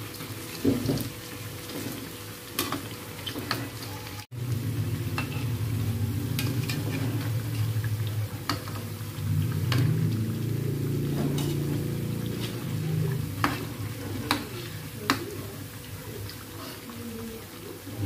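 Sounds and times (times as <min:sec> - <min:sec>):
fritters sizzling in hot oil: 0:00.0 - 0:18.0
low steady hum: 0:04.4 - 0:18.0
metal spatula scraping wok: 0:05.2 - 0:05.6, 0:06.3 - 0:07.8, 0:11.0 - 0:14.9.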